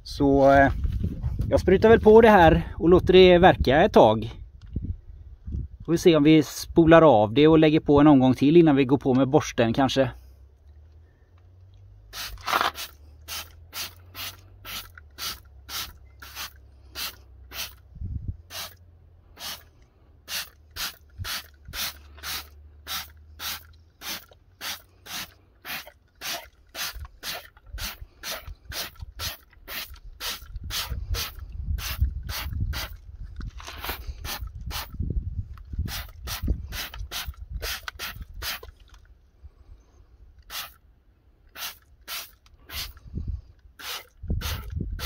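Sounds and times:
spray bottle hiss: 0:12.1 - 0:17.8, 0:18.5 - 0:18.8, 0:19.4 - 0:19.7, 0:20.3 - 0:33.0, 0:33.8 - 0:34.9, 0:35.9 - 0:38.7, 0:40.4 - 0:40.8, 0:41.5 - 0:43.0, 0:43.8 - 0:44.7
low rumble: 0:17.8 - 0:19.4.

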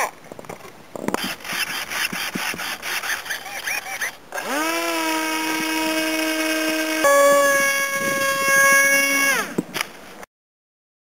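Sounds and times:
rubbing and scraping from handling: 0:00.5 - 0:04.2
model plane motor whining: 0:01.2 - 0:09.6.

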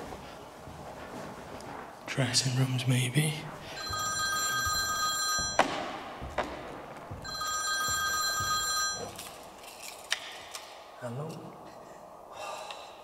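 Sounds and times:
phone ringing: 0:03.8 - 0:06.1, 0:07.1 - 0:09.4.

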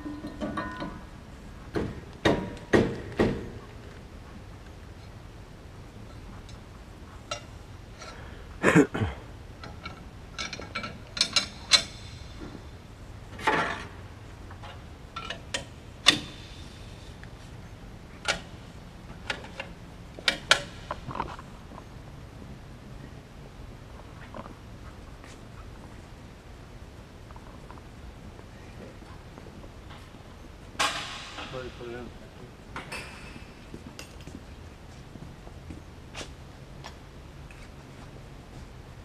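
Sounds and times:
hangar background noise: 0:00.0 - 0:39.0
metallic tool clinks and knocks: 0:33.8 - 0:34.5.

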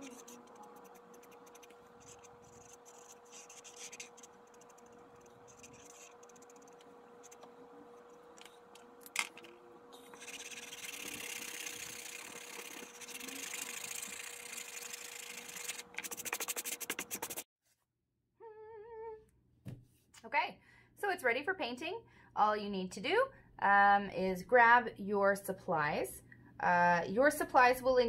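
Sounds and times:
hand rubbing over paper: 0:00.0 - 0:07.6
marker scratching on paper: 0:00.0 - 0:08.4, 0:10.0 - 0:17.4
faint steady hum: 0:00.0 - 0:15.8.

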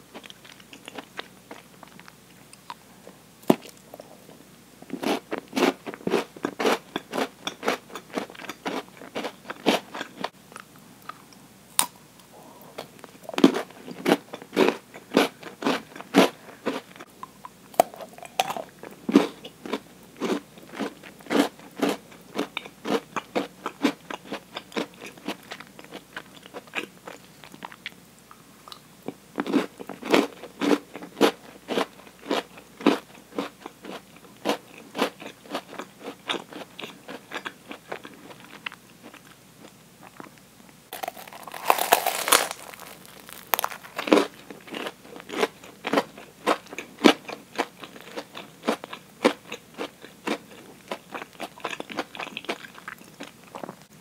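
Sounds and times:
biting and chewing chocolate: 0:04.9 - 0:12.0, 0:12.8 - 0:17.1, 0:28.7 - 0:53.8.

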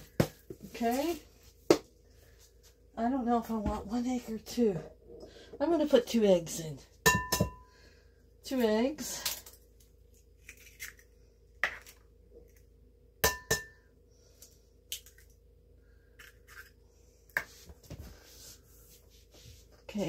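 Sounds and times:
egg knocking on glass bowl: 0:07.1 - 0:07.6, 0:13.2 - 0:13.8.

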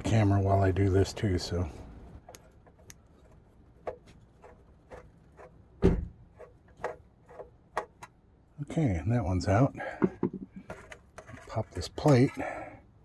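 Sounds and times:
screwdriver clicks and creaks: 0:02.2 - 0:05.6, 0:10.6 - 0:12.4.

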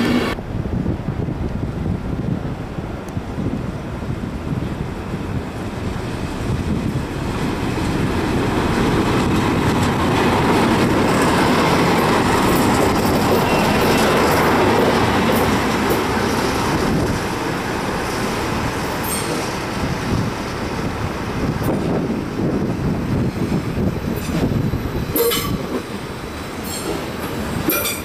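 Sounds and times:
train wheel and rail noise: 0:00.0 - 0:28.0
diesel locomotive engines running: 0:01.8 - 0:28.0.

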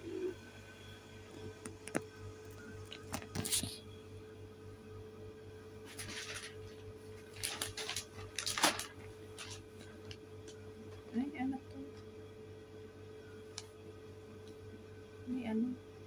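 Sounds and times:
plastic bag rustling and crinkling: 0:05.9 - 0:10.2.

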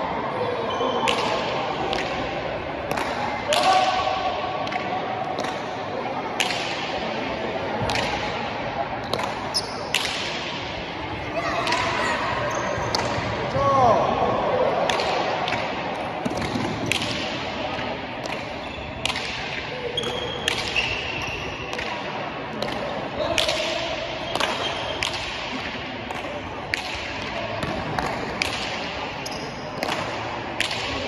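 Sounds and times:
ball smacks echoing in hall: 0:00.0 - 0:31.0.

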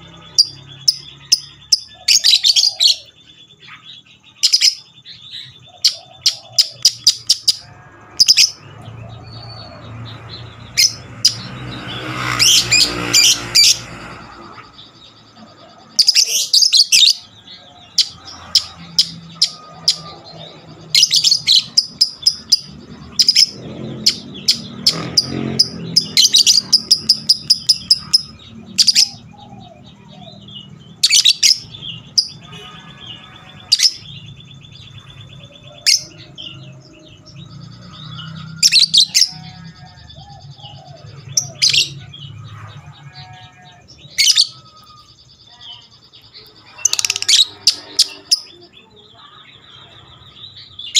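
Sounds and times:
lovebird rapid chatter: 0:46.4 - 0:48.7.

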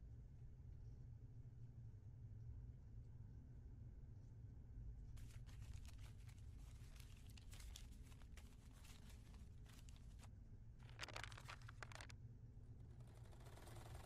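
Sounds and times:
cloth rustling and scratching: 0:05.2 - 0:12.1.

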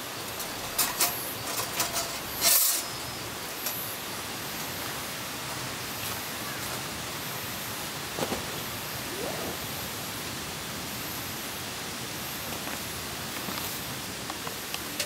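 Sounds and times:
falling rain: 0:00.0 - 0:15.0
bag set down on gravel: 0:08.2 - 0:08.6.

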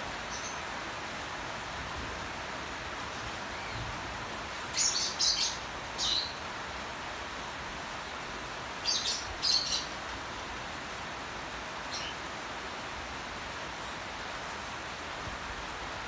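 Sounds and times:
rain hissing: 0:00.0 - 0:16.0.

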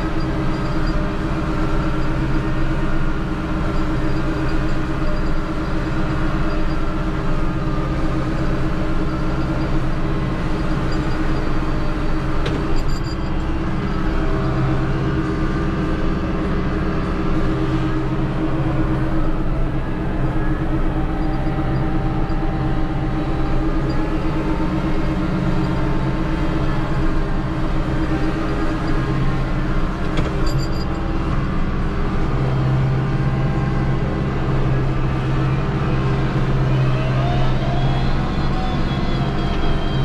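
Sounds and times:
rising whine: 0:00.0 - 0:40.0
tractor diesel engine running: 0:00.0 - 0:40.0.

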